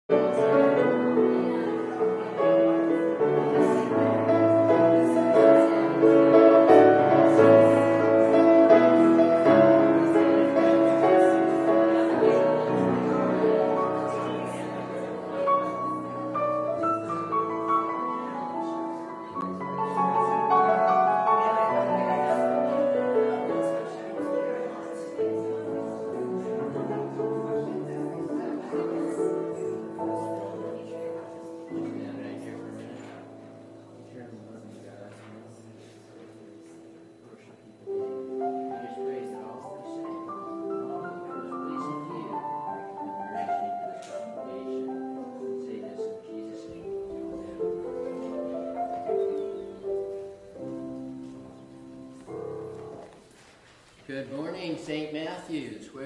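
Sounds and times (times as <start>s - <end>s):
keyboard chords: 0.1s - 34.2s, 37.7s - 53.3s.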